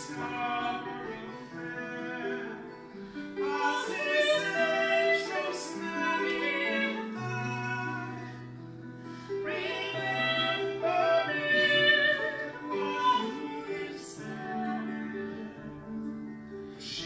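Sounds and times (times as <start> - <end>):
harp: 0.0 - 17.0
people singing a slow ballad: 3.4 - 8.5, 9.4 - 16.0.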